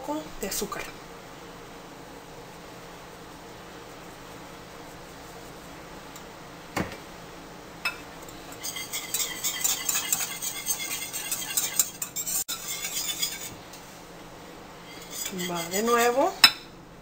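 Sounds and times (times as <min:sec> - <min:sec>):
whisk clinking against bowl: 0:07.9 - 0:13.6, 0:14.9 - 0:16.6.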